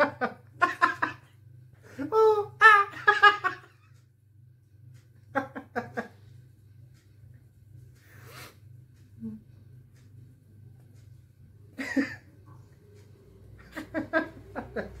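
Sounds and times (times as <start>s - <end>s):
low steady hum: 0.0s - 15.0s
man laughing: 11.8s - 12.3s.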